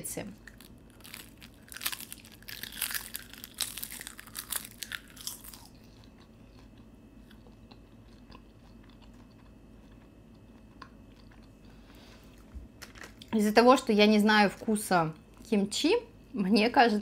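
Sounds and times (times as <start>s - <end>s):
crunching seaweed chips: 0.4s - 10.1s.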